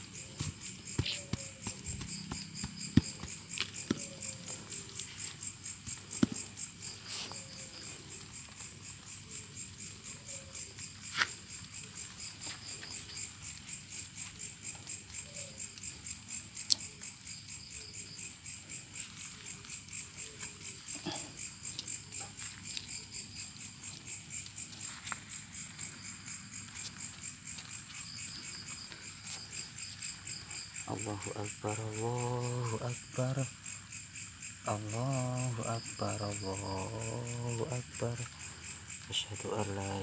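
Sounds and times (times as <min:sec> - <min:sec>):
crickets chirping: 0:00.0 - 0:40.0.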